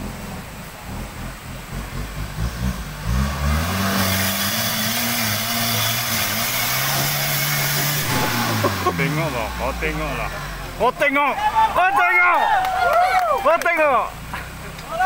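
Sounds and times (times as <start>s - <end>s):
truck engine revving: 0.0s - 12.9s
loud rushing hiss: 4.0s - 9.4s.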